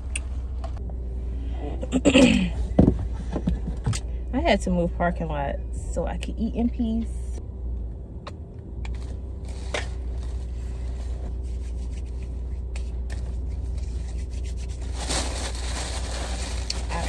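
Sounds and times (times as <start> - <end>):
low hum: 0.0 - 17.0
plastic bag rustling: 13.4 - 17.0.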